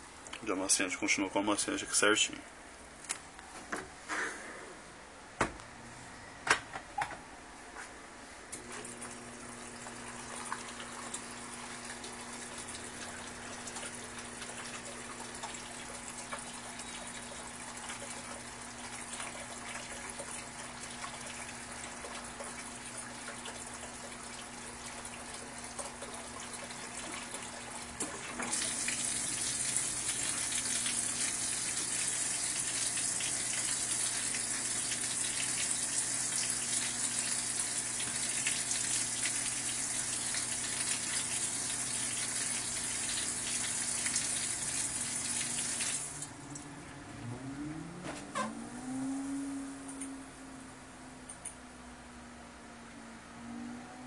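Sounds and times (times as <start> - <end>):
low machine hum: 4.4 - 54.0
water spraying into washing machine: 8.7 - 46.4.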